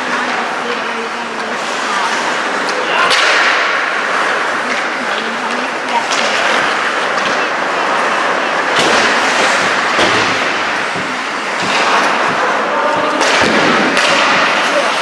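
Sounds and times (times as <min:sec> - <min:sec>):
hockey sticks and puck clacking: 0:00.0 - 0:15.0
skates scraping ice: 0:00.0 - 0:15.0.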